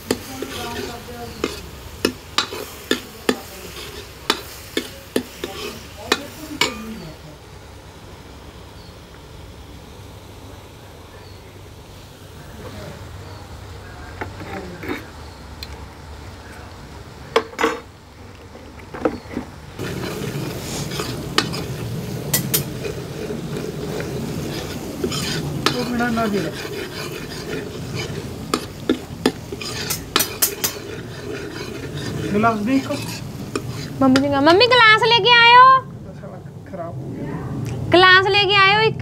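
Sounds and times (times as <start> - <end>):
metal ladle scraping pan: 0.0 - 7.0, 19.1 - 34.4
paste sizzling in oil: 0.0 - 15.6, 19.2 - 35.7.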